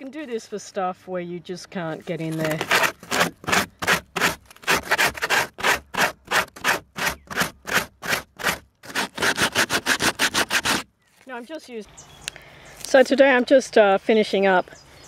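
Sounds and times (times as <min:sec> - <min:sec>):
sandpaper rubbing on foam: 0:02.4 - 0:10.9.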